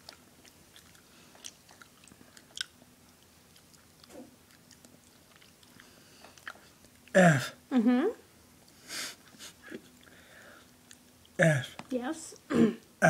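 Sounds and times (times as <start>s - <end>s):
murmured vocal sound: 11.4s - 11.7s.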